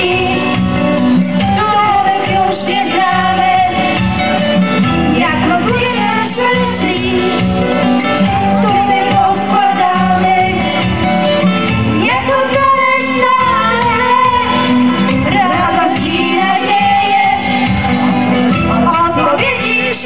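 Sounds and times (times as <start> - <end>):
instrumental accompaniment: 0.0 - 20.0
choir singing: 1.9 - 4.0, 5.2 - 7.4, 8.6 - 10.7, 12.0 - 18.4.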